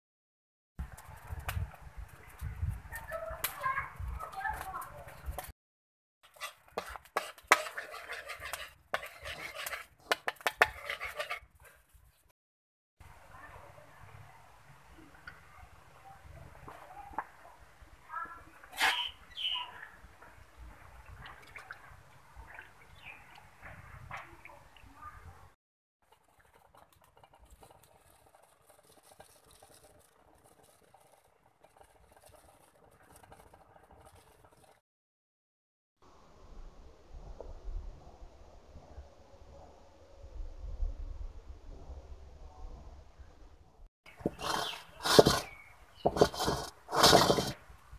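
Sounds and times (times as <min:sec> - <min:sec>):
spoon scraping a metal wok: 0:06.2 - 0:11.7, 0:44.2 - 0:47.6.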